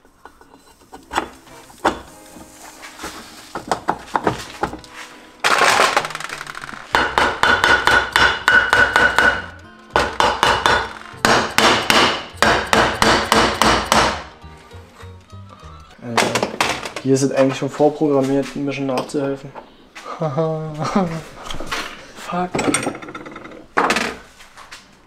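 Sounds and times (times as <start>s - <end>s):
hammer striking metal: 6.9s - 14.4s.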